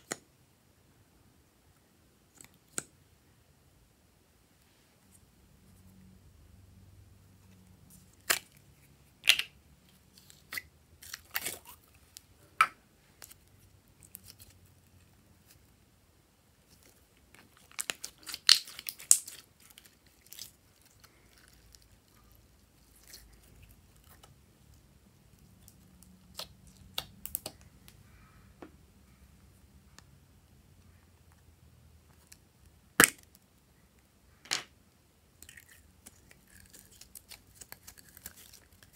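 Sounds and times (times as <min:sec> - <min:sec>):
sticky slime crackles and pops: 0:16.7 - 0:24.3, 0:32.2 - 0:33.4.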